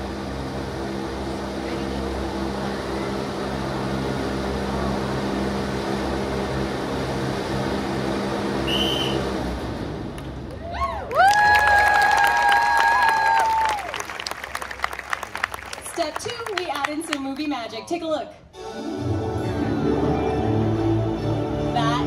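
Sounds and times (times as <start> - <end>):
wind machine fan blowing: 0.0 - 17.2.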